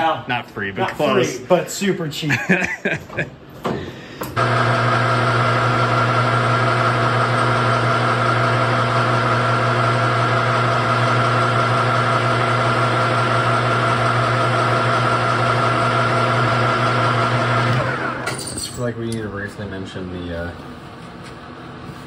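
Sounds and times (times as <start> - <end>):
metal lathe whining hum: 4.4 - 18.4.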